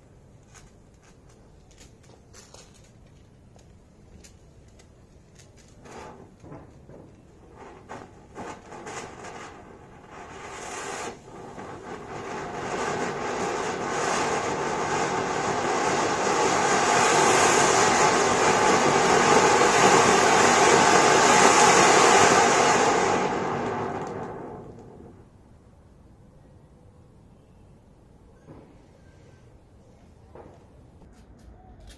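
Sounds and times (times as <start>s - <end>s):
fountain firework hissing: 5.8s - 25.3s.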